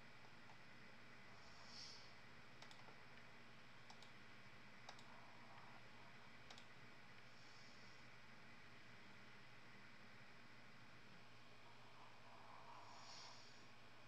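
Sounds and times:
low room hiss: 0.0s - 14.0s
faint clicks: 2.6s - 4.2s, 4.8s - 5.7s, 6.4s - 6.7s.

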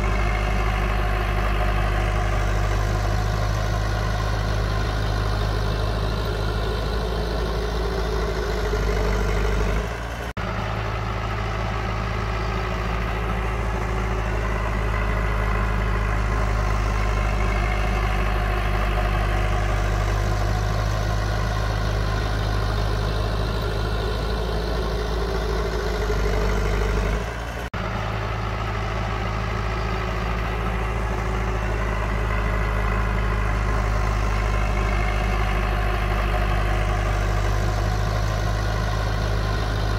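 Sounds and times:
diesel engine running: 0.0s - 39.9s.

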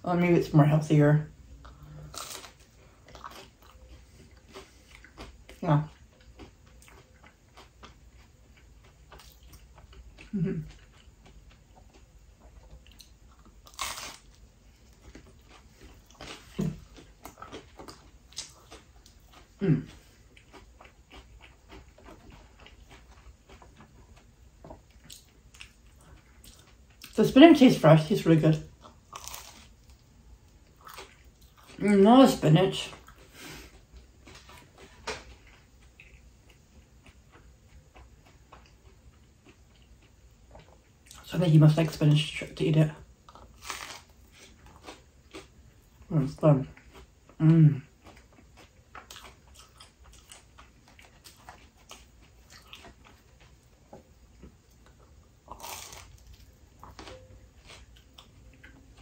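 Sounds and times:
soft chewing: 1.6s - 27.6s, 28.5s - 41.3s, 43.0s - 59.0s
pizza crust crunching: 1.7s - 5.5s, 12.8s - 27.4s, 28.9s - 30.0s, 43.3s - 45.6s, 47.9s - 59.0s.

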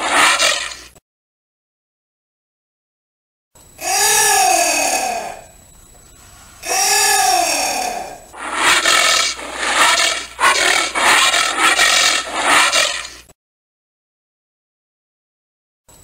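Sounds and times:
anteater calling: 8.3s - 13.2s.

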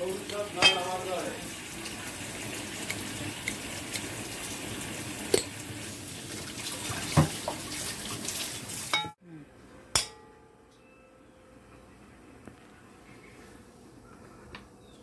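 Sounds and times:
water running: 0.0s - 9.2s.

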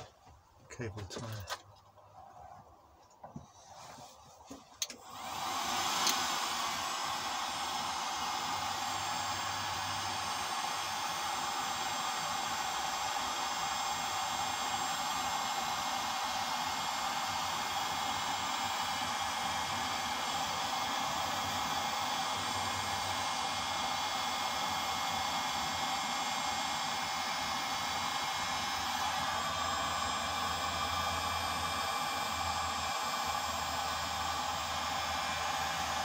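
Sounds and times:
heat gun blowing hot air: 3.6s - 36.0s
heat gun switch clicks: 6.0s - 6.3s.

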